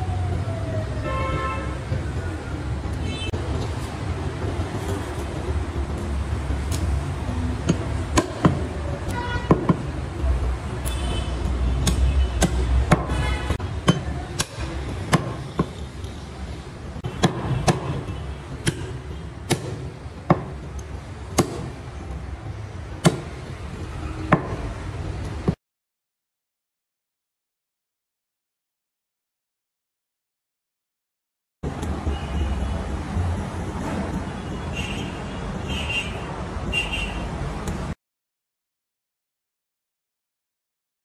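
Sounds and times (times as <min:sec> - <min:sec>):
cleaver chopping on wooden block: 0:07.6 - 0:08.6, 0:11.8 - 0:13.2, 0:13.8 - 0:15.8, 0:17.1 - 0:20.6, 0:21.4 - 0:21.8, 0:23.0 - 0:23.4.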